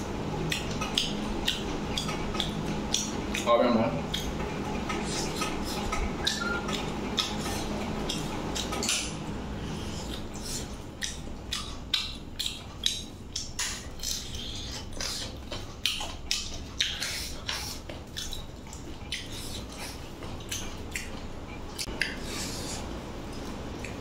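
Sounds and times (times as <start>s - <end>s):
chewing and lip-smacking: 0.0s - 24.0s.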